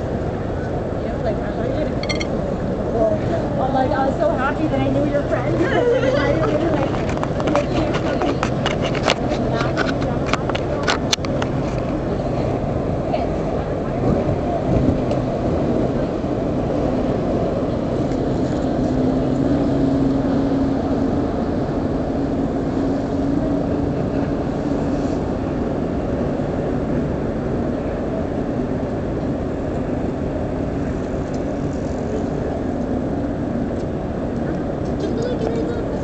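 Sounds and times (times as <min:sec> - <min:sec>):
faint hum: 0:00.0 - 0:08.4
ship engine rumble: 0:00.0 - 0:36.0.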